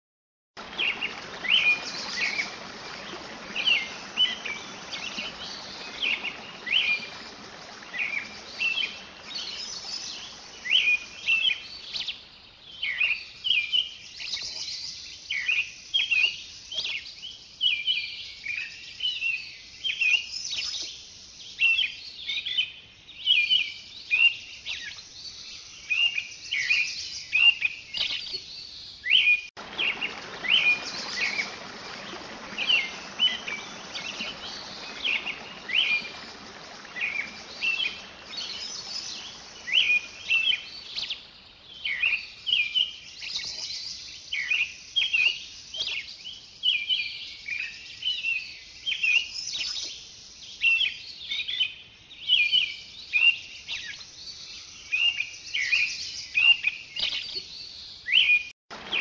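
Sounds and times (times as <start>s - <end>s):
birds chirping and calling: 29.2s - 43.6s
steady hiss: 29.6s - 41.8s.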